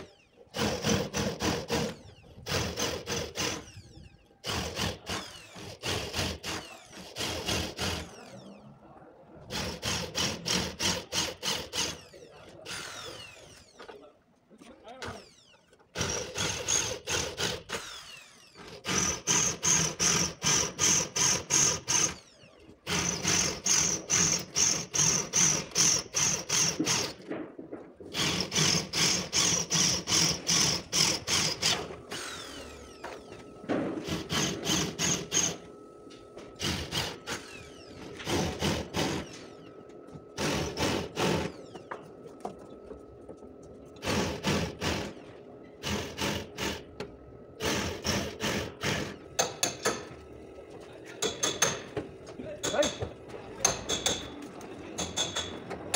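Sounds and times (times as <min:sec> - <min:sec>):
power drill drilling sheet metal: 0:00.0 - 0:08.6, 0:09.4 - 0:14.0, 0:15.0 - 0:27.3, 0:28.1 - 0:35.8, 0:36.5 - 0:39.8, 0:40.4 - 0:42.0, 0:44.0 - 0:46.9, 0:47.6 - 0:50.1.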